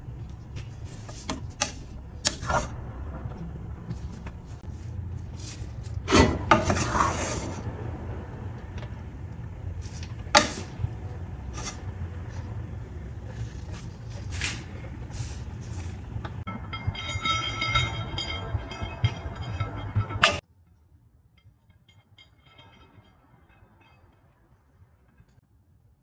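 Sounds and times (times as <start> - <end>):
steady low hum: 0.0 - 25.4
spatula scraping a metal pan: 5.3 - 7.6, 11.5 - 12.5, 16.6 - 20.4.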